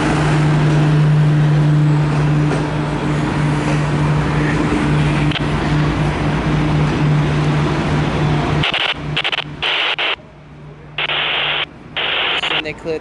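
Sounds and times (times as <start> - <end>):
railway engine hum: 0.0 - 13.0
radio squelch static bursts: 8.6 - 10.2, 11.0 - 12.8.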